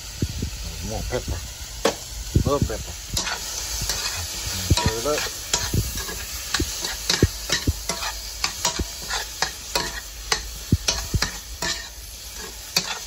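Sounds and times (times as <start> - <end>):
vegetables sizzling: 0.0 - 13.0
utensil scraping a frying pan: 3.1 - 13.0.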